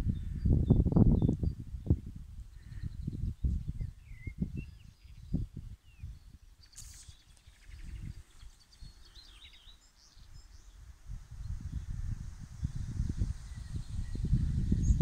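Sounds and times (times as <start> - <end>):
wind buffeting microphone: 0.0 - 15.0
birds chirping: 2.5 - 10.9.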